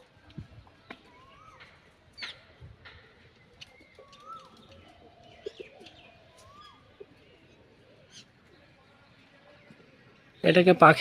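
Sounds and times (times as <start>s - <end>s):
birds chirping: 0.6s - 11.0s
bird call rising and falling: 3.5s - 6.9s
pigeons cooing low: 3.7s - 8.3s.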